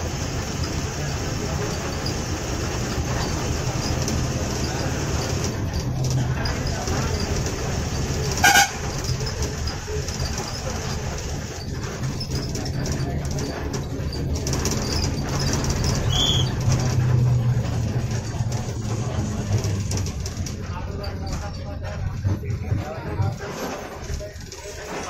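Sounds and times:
bus diesel engine running: 0.0s - 25.0s
loud horn blast: 8.4s - 8.9s.

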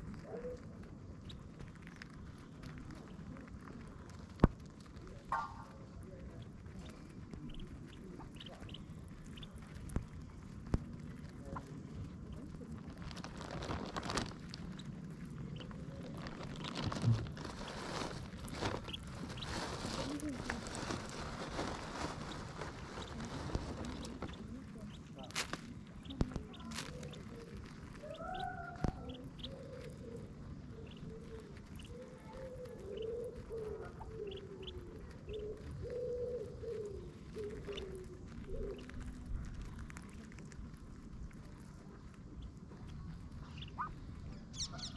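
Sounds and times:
ducks pecking at grass: 0.0s - 44.9s
steady low rumble: 0.0s - 44.9s
duck giving soft low calls: 28.0s - 39.2s, 43.5s - 44.9s.

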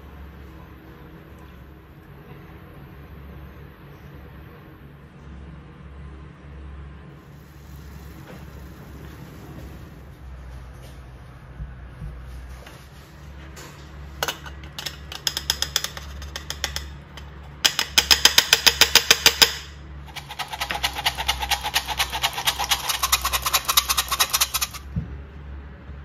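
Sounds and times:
flour sifter clicking and rasping: 13.7s - 24.9s.

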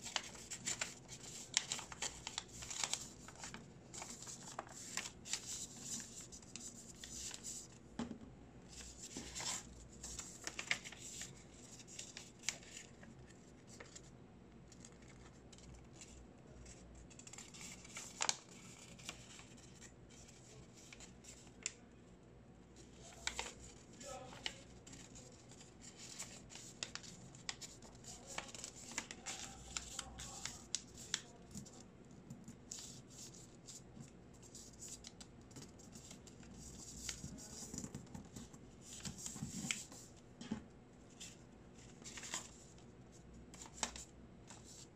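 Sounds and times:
paper crackle: 0.0s - 7.6s, 8.7s - 14.0s, 14.7s - 21.7s, 23.0s - 31.8s, 41.2s - 42.7s
paper rustling and crinkling: 0.0s - 7.8s, 8.7s - 14.1s, 14.7s - 21.8s, 22.8s - 40.2s, 41.1s - 44.9s.

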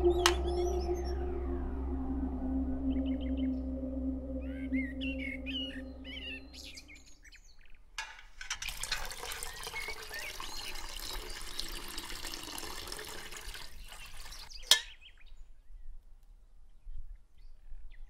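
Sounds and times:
tea pouring into metal vessel: 8.4s - 14.8s.

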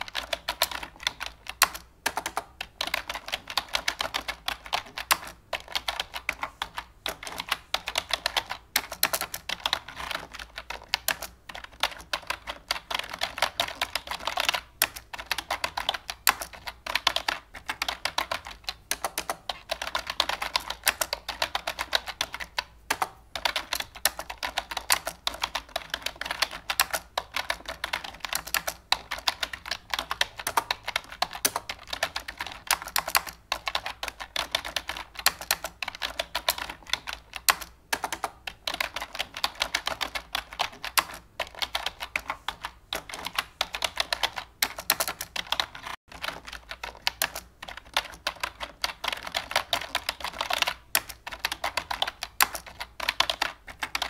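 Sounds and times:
computer keyboard typing: 0.0s - 54.0s.

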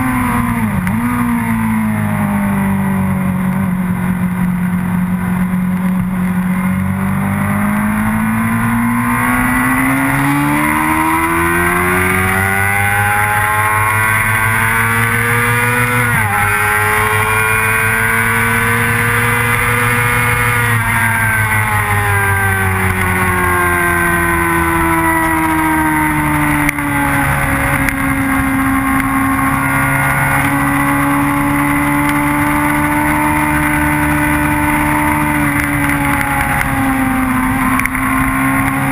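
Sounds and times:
motorcycle engine accelerating: 0.0s - 38.9s.

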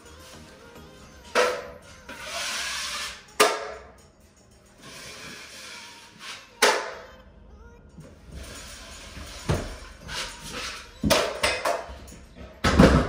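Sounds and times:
scraping: 8.0s - 12.9s.

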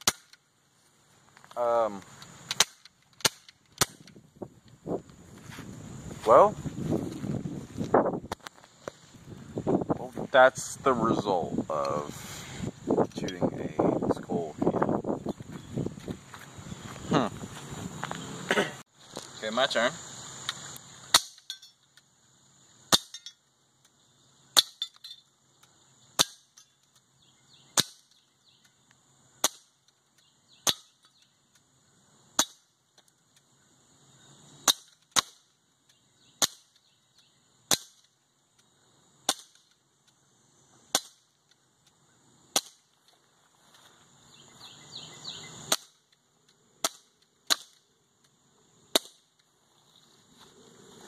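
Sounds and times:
bb gun firing: 0.0s - 0.4s.

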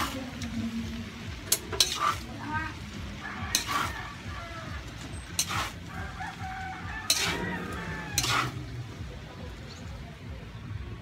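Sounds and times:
metal spatula scraping a wok: 1.4s - 9.0s.

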